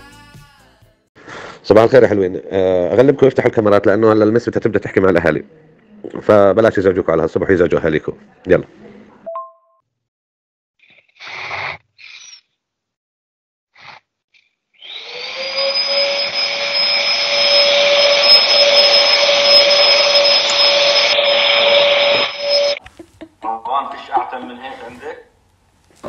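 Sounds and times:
small electric motor whining: 14.8 - 22.8.

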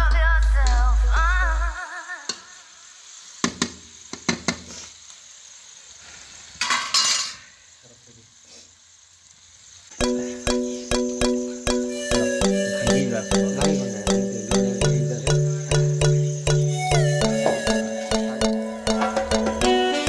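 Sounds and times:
chicken sizzling in hot oil: 0.0 - 20.0
background music: 10.0 - 20.0.

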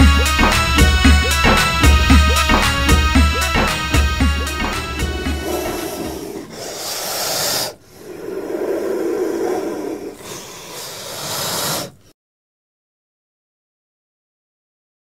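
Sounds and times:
cobra hissing: 1.2 - 12.1.

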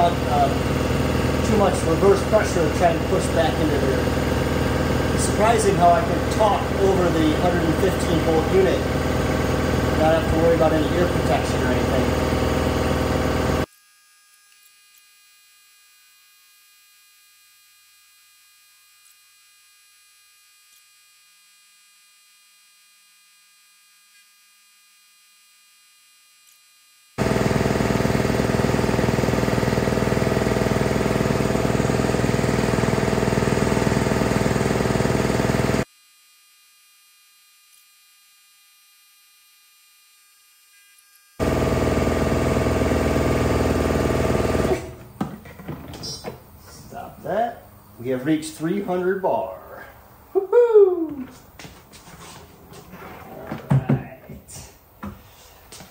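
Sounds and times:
air compressor running: 0.0 - 13.7, 27.2 - 35.9, 41.4 - 47.8.

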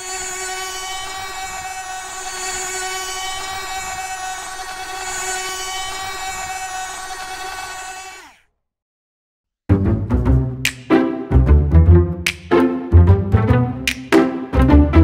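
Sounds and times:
toy motor and gearbox whining: 0.0 - 8.5.

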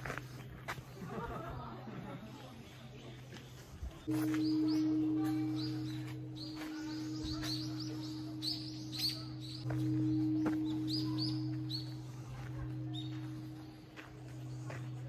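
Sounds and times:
songbirds chirping: 0.0 - 15.0
low two-tone drone: 4.1 - 15.0.

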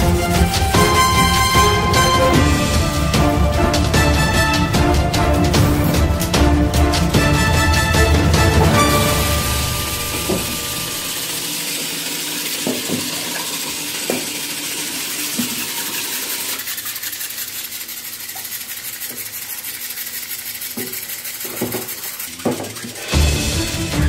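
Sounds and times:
water sloshing in a tub: 8.4 - 23.4.

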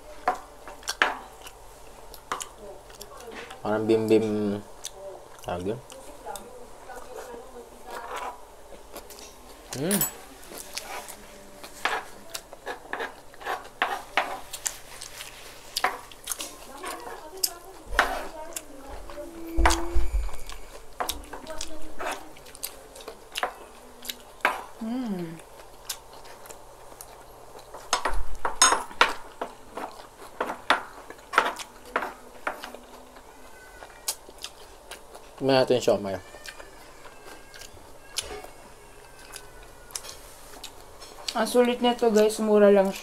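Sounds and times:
cutlery clinking and scraping: 9.0 - 15.2, 27.7 - 32.8.

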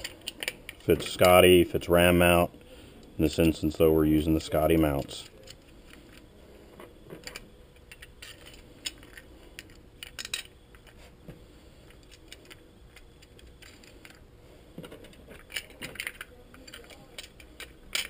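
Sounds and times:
small screws and plastic parts clicking: 0.0 - 1.4, 11.9 - 14.2, 14.8 - 18.0.

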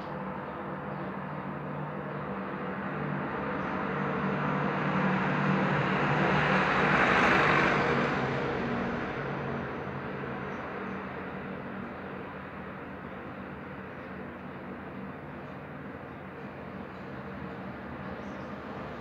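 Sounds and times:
passing vehicle rushing: 4.1 - 10.1.

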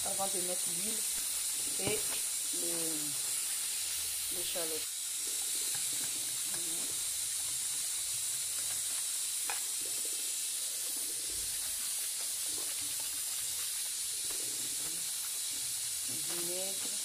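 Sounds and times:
steady high hiss: 0.0 - 17.0
whisk swishing in metal bowl: 5.2 - 17.0.

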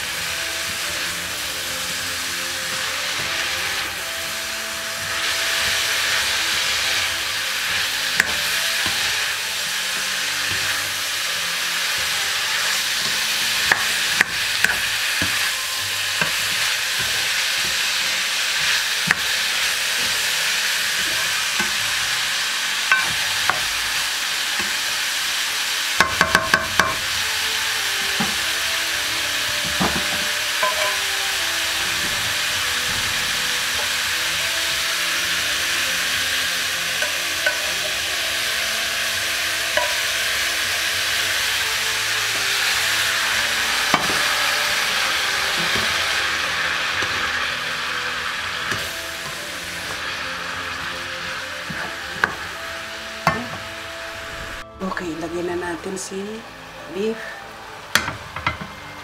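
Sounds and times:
vegetables sizzling in a pan: 0.0 - 59.0
spatula knocking against pan: 26.0 - 27.0, 29.7 - 31.0.

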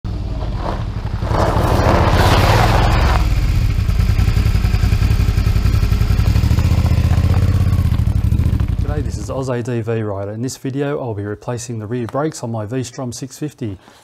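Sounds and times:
gravel rushing under tyres: 0.1 - 9.4
motorcycle engine running: 0.1 - 9.5.

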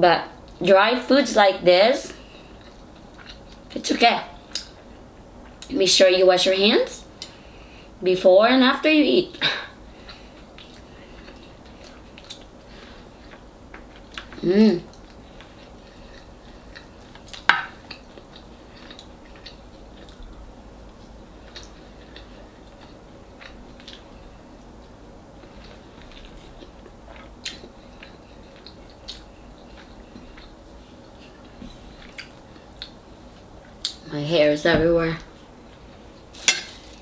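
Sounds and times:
person chewing food: 2.2 - 3.8, 9.9 - 34.0.

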